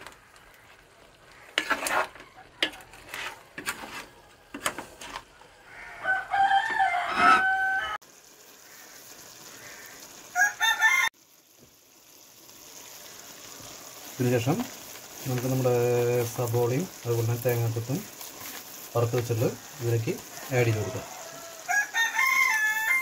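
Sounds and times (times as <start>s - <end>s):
spoon stirring in clay pot: 1.4s - 5.2s
rooster crowing: 5.6s - 8.0s, 9.5s - 11.2s, 19.5s - 23.0s.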